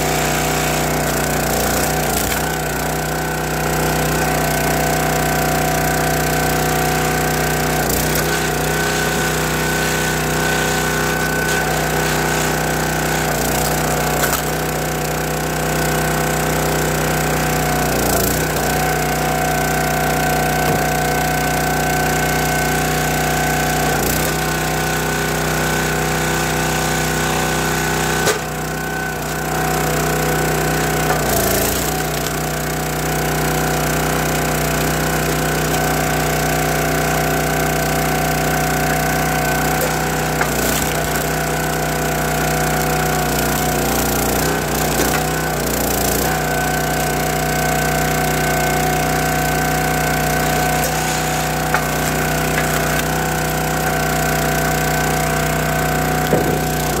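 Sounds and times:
log splitter engine running: 0:00.0 - 0:57.0
wood cracking as it splits: 0:01.0 - 0:02.8, 0:12.5 - 0:15.0, 0:30.3 - 0:32.8, 0:34.8 - 0:36.4, 0:39.4 - 0:46.4, 0:50.6 - 0:55.2, 0:55.9 - 0:57.0.

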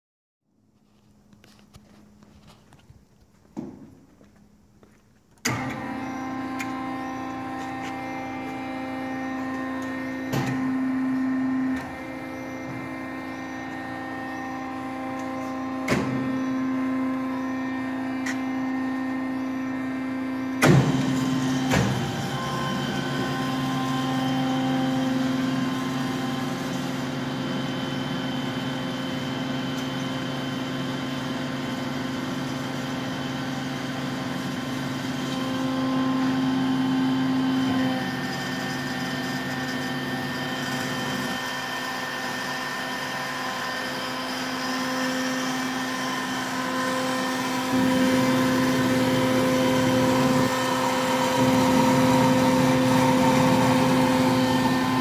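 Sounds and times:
bandsaw humming: 0:35.2 - 0:55.0.

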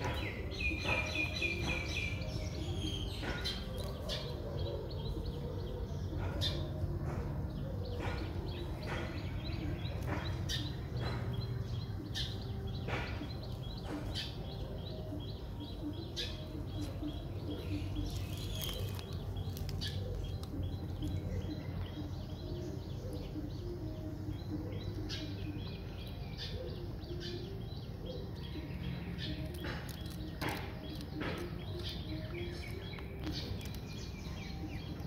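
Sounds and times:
birds chirping: 0:00.0 - 0:35.0
kittens chewing crunchy food: 0:17.7 - 0:21.2.

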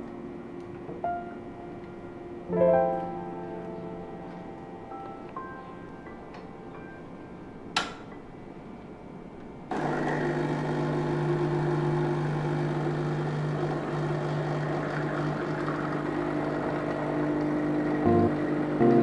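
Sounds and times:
espresso machine pump buzzing: 0:09.7 - 0:19.0.

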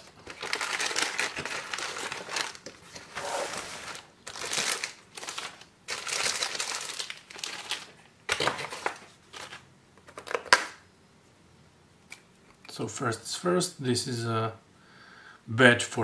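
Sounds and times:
plastic bags crinkling: 0:00.0 - 0:10.6.

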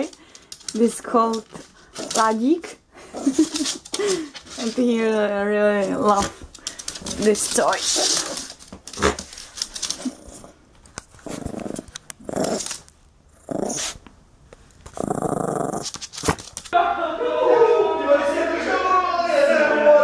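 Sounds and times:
small dog growling: 0:11.2 - 0:14.0, 0:14.9 - 0:16.4.

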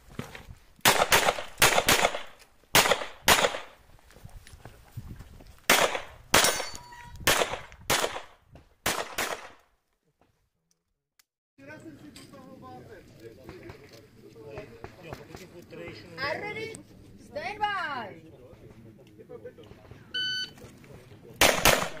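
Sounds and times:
handgun shots: 0:00.8 - 0:03.8, 0:05.7 - 0:09.6, 0:21.4 - 0:22.0.

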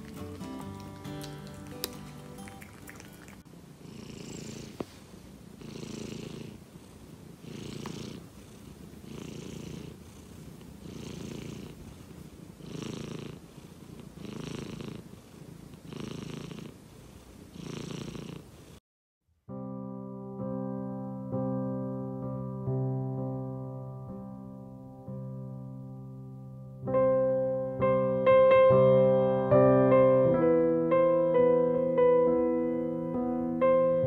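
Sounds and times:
cat purring: 0:00.0 - 0:18.8.

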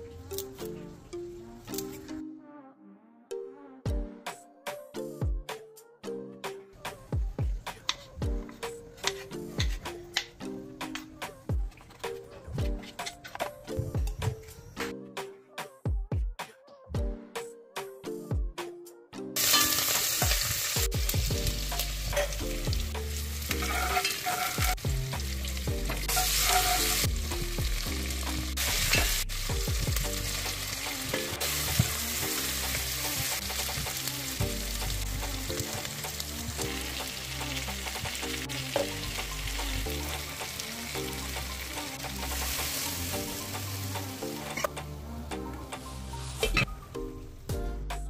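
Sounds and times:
low music: 0:16.7 - 0:48.0
food sizzling in oil: 0:19.4 - 0:44.6.

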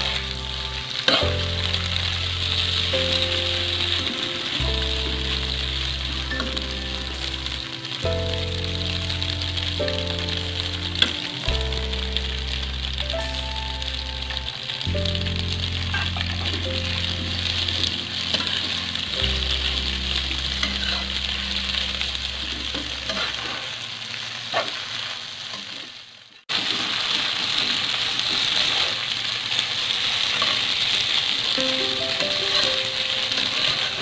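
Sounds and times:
faint background music: 0:00.0 - 0:23.6, 0:31.6 - 0:34.0
noodles sizzling in a wok: 0:00.0 - 0:34.0.

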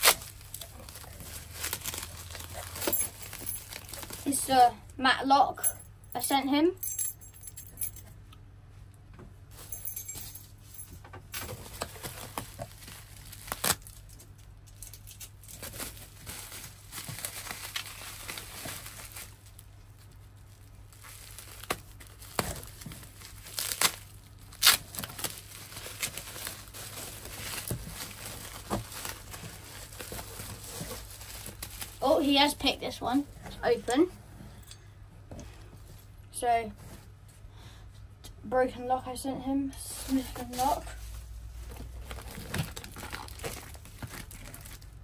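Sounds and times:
bubble wrap crinkling: 0:00.0 - 0:04.6, 0:09.5 - 0:33.0, 0:39.9 - 0:45.0.

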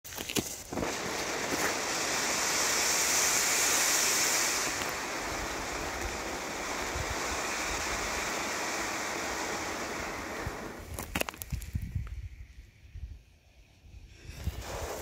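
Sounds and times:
fountain firework hissing: 0:00.5 - 0:11.0, 0:13.9 - 0:15.0.

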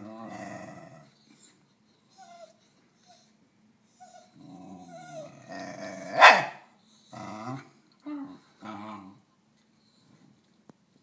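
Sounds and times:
dog growling: 0:00.0 - 0:01.2, 0:04.0 - 0:06.3, 0:07.0 - 0:09.3
dog barking outburst: 0:06.1 - 0:06.6.

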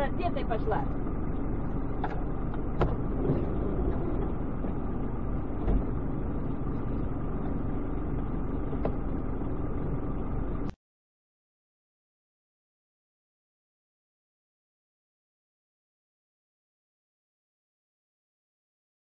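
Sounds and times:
car engine idling: 0:00.0 - 0:10.8
low thump: 0:02.0 - 0:04.4, 0:05.6 - 0:06.0.

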